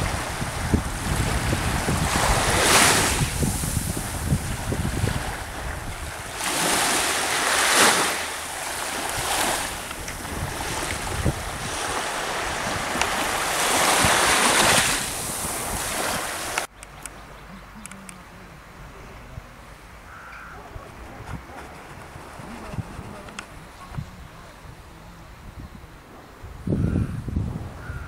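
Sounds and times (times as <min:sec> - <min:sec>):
small waves washing on shore: 0:00.0 - 0:16.7
wind on microphone: 0:00.0 - 0:16.7, 0:18.8 - 0:28.0.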